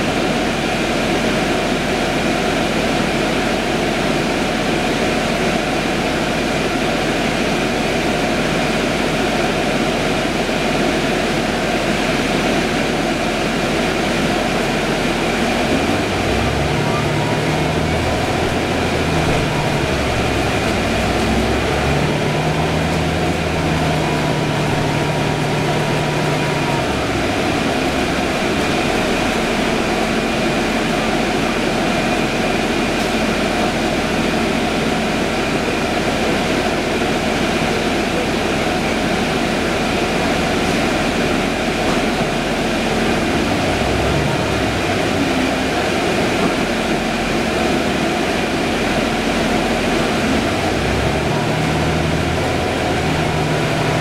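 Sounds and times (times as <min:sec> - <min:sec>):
bus drivetrain hum: 0:00.0 - 0:54.0
road noise: 0:12.0 - 0:54.0
thin steady whine: 0:12.3 - 0:34.0, 0:38.2 - 0:54.0.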